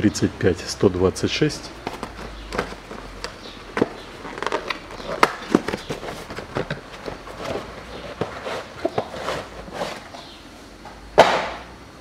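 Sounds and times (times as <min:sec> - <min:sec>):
cardboard and paper rustling: 0:01.8 - 0:10.2
loud short rustling scrape: 0:07.3 - 0:10.2.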